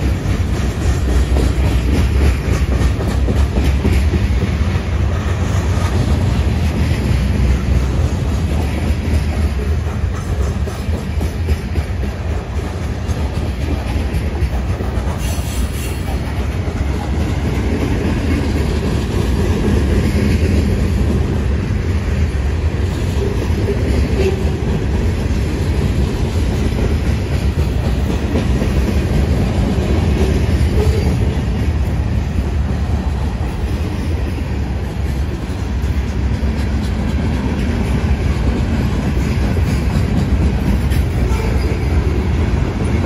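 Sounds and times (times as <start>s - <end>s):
freight cars rumbling on rails: 0.0s - 43.0s.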